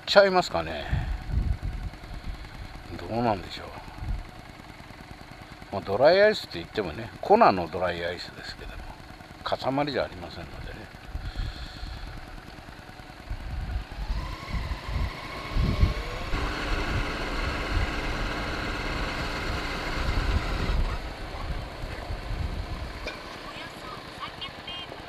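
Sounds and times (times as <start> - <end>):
motorcycle engine riding: 0.0 - 25.0
wind rumble on microphone: 0.9 - 2.3, 13.4 - 17.1.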